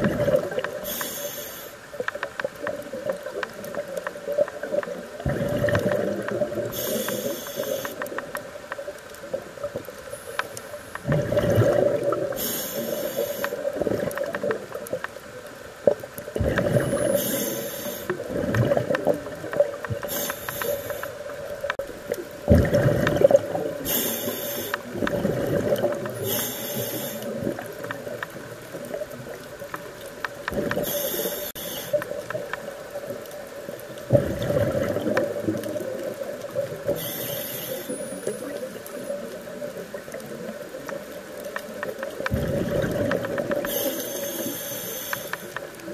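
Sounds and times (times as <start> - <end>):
bubbling gurgling exhalations: 0.0 - 1.0, 5.2 - 7.3, 11.0 - 13.0, 16.3 - 20.2, 22.4 - 26.4, 34.0 - 37.1, 42.3 - 44.0
hissing regulator inhalations: 0.8 - 1.9, 6.7 - 8.2, 12.3 - 13.7, 16.9 - 18.2, 20.0 - 21.3, 23.8 - 24.9, 26.2 - 27.4, 30.8 - 32.2, 36.9 - 38.4, 43.6 - 45.7.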